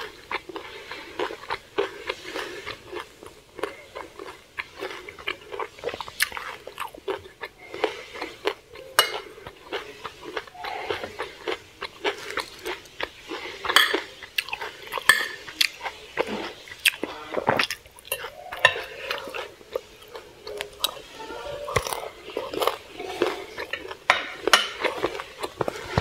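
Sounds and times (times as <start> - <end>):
chewing: 0.0 - 26.0
cutlery clinking on a plate: 9.0 - 9.4, 13.7 - 14.1, 15.0 - 15.5, 23.2 - 26.0.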